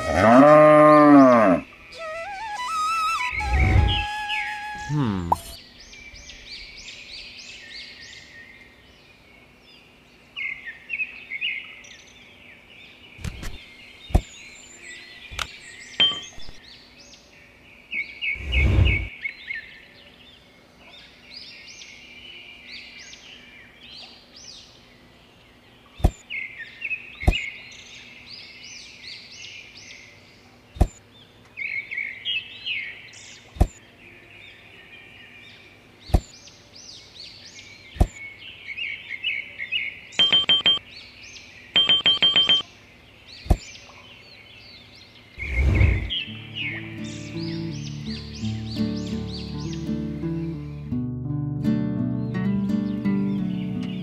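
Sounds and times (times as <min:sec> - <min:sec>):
small birds chirping: 0:00.0 - 0:51.0, 0:52.1 - 0:54.0
sharp clicks: 0:40.2 - 0:40.8, 0:41.8 - 0:42.6.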